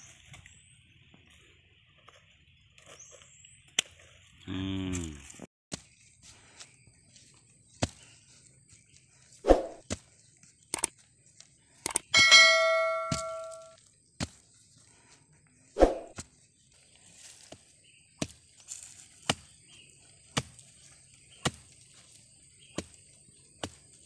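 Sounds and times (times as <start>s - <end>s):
bell notification ding: 12.2s - 13.8s.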